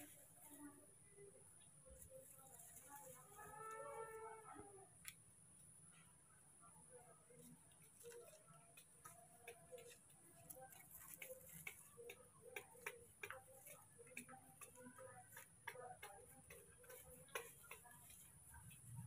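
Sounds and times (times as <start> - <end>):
faint irregular ticks and clicks: 7.3 - 19.0.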